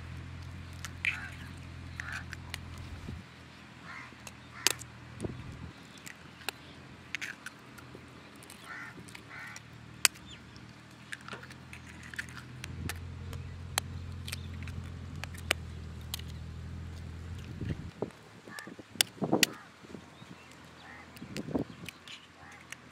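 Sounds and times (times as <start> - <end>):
low steady hum: 0.0 - 22.9
knife cracking eggshells: 4.2 - 4.9.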